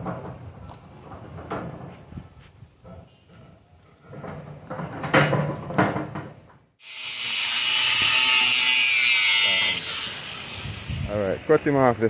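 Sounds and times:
knocks and clatters: 0.0 - 2.2, 2.8 - 6.7
loud steady hiss: 10.0 - 12.0.

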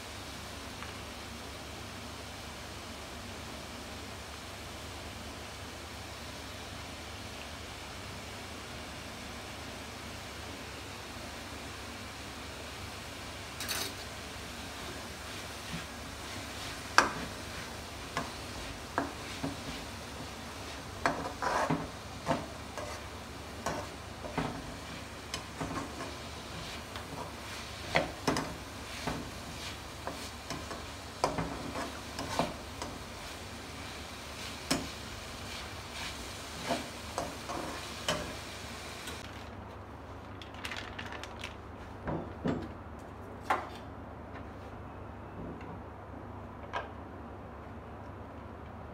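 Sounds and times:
vegetables sizzling hiss: 0.0 - 39.2
metal turner scraping frying pan: 15.6 - 38.5.

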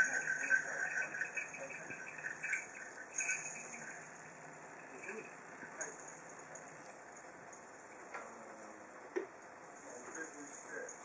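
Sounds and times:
small metal bells tinkling: 0.0 - 8.1.

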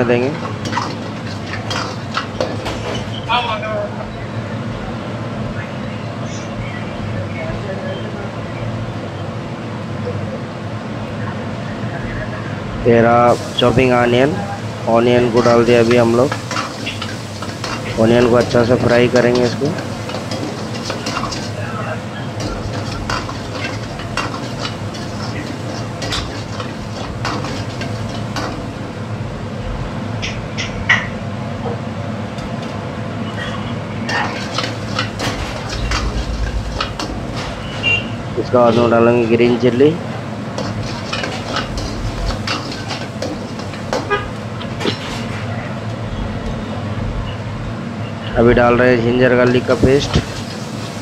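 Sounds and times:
onions frying in oil: 0.0 - 3.4, 12.8 - 33.2, 33.8 - 48.0, 48.6 - 51.0
ladle scraping metal wok: 0.4 - 3.2, 15.3 - 28.8, 34.0 - 38.9, 40.5 - 45.5
steady low hum: 32.3 - 44.8
low hum: 33.6 - 38.7.

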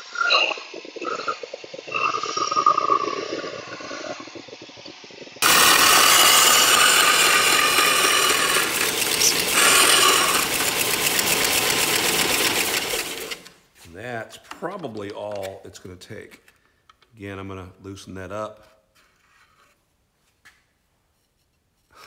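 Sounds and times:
metal grinding on sander belt: 5.4 - 13.5
mechanical rattling and ticking: 5.4 - 13.6
motor hum: 5.4 - 13.6.

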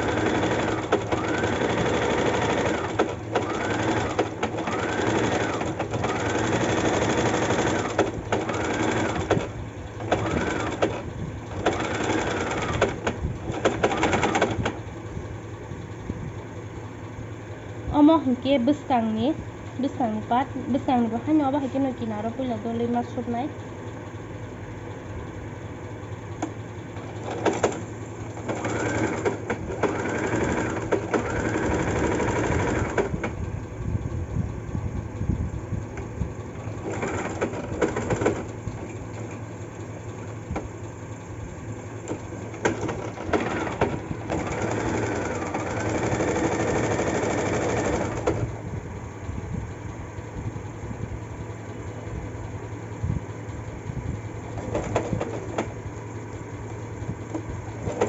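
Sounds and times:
sewing machine stitching: 0.0 - 14.9, 26.4 - 33.4, 36.6 - 39.4, 42.0 - 48.6, 54.5 - 55.8, 57.7 - 58.0.

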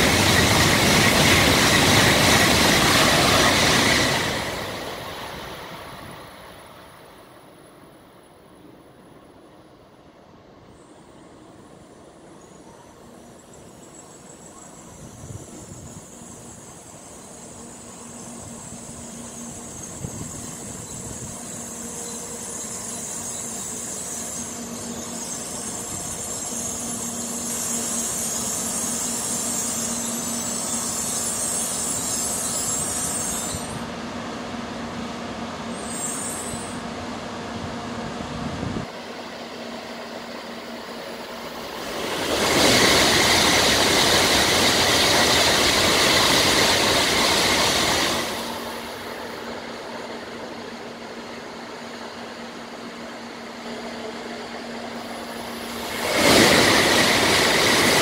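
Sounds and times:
train passing at speed: 0.0 - 58.0
train brake squeal: 11.9 - 33.9, 35.7 - 36.9, 40.2 - 58.0.

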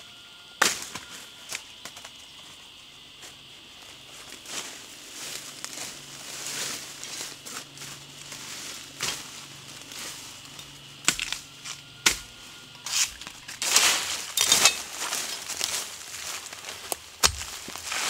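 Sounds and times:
footsteps crunching through dry leaves: 3.1 - 11.6, 12.2 - 18.0
twigs crackling: 12.8 - 18.0.

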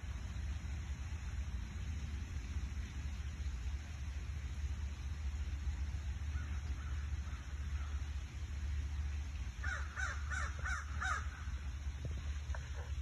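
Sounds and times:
steady low rumble: 0.0 - 13.0
bird calling: 9.6 - 11.6.

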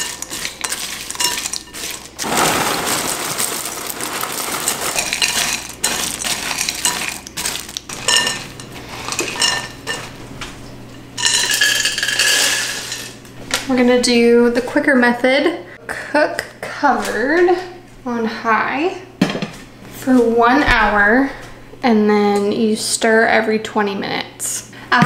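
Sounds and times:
spatula scraping glass bowl: 0.0 - 2.3, 3.3 - 10.1
cereal pouring rattle: 0.0 - 9.3, 11.2 - 13.1.

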